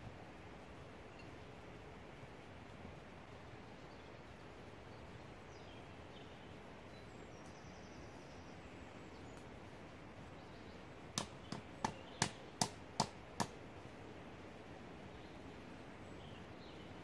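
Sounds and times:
faint bird chirps: 1.0 - 1.6, 3.6 - 12.5
sharp knocks on axe: 11.2 - 13.6.

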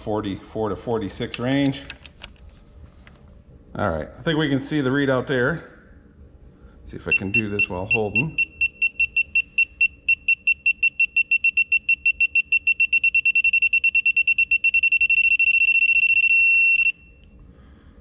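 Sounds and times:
high rapid beeping: 7.1 - 17.0.

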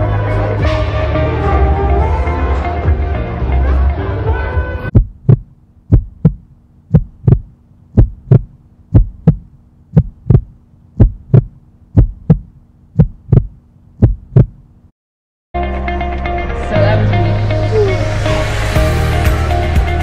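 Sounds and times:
heartbeat thumps: 4.9 - 14.7
steady low hum: 4.9 - 14.9.

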